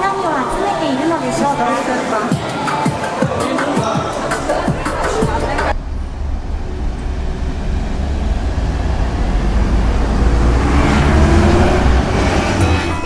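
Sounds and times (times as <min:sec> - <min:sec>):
deep rumbling whoosh: 0:04.6 - 0:13.0.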